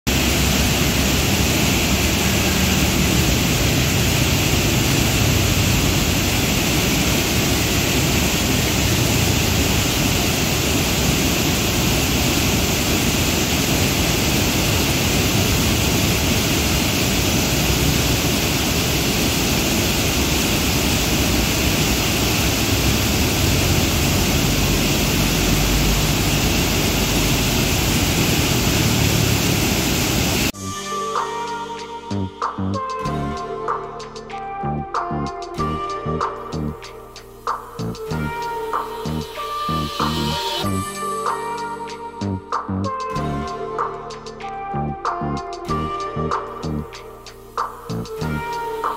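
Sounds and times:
river rushing through rapids: 0.1 - 30.5.

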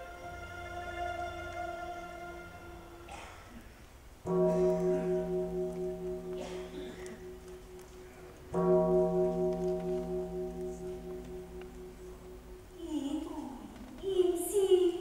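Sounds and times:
deep bell ringing: 4.3 - 13.8.

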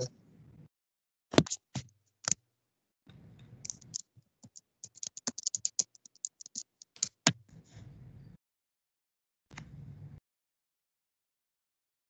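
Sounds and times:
computer keyboard typing: 3.7 - 7.3.

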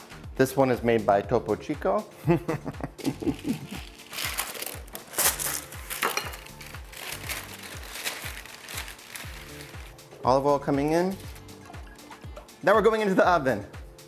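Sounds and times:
background music with beat: 0.0 - 14.0
parchment paper crinkling: 3.2 - 10.0.

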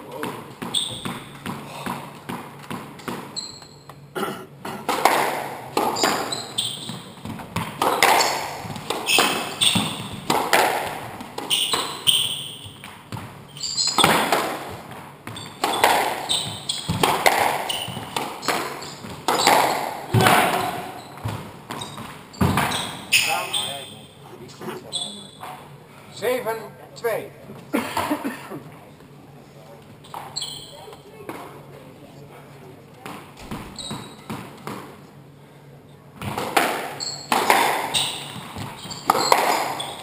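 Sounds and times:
squash ball hits: 0.1 - 3.4, 4.8 - 23.4, 36.2 - 40.0
shoes squeaking on wooden floor: 0.1 - 4.1, 5.7 - 24.1, 24.7 - 25.6, 30.0 - 31.0, 33.4 - 34.5, 36.9 - 40.0.

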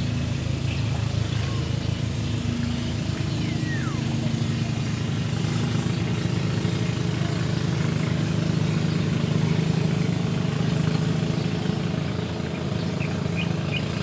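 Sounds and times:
engine running at low revs: 0.0 - 14.0.

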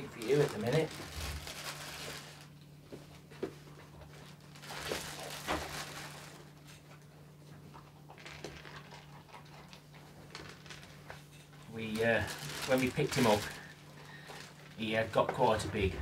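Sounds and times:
plastic bag rustling: 0.0 - 6.8, 8.2 - 9.1, 10.0 - 16.0
puppy crunching kibble: 0.0 - 14.9
low hum: 15.2 - 16.0.

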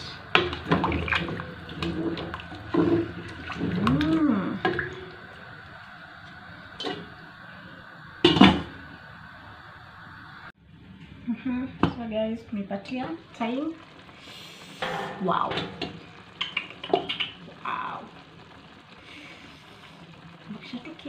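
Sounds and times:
liquid sloshing in pot: 0.3 - 5.2.

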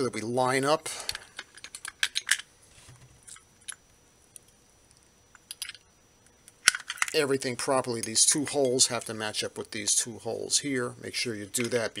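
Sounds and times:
small parts clicking and tapping: 1.0 - 2.5, 3.2 - 7.2.

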